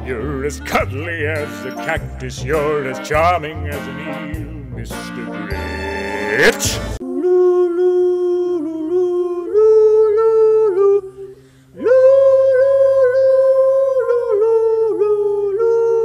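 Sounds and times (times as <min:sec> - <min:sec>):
man humming: 0:05.1 - 0:09.7.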